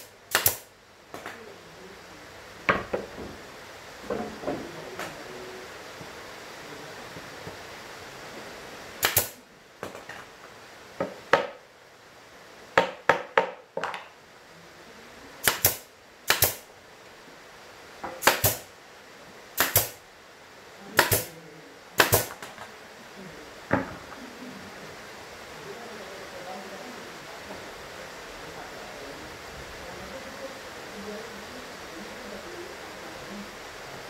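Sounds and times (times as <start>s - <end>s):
nail gun shots into plywood: 0.0s - 0.7s, 9.0s - 9.4s, 15.4s - 16.6s, 18.2s - 18.7s, 19.6s - 20.0s, 21.0s - 21.3s, 22.0s - 22.4s.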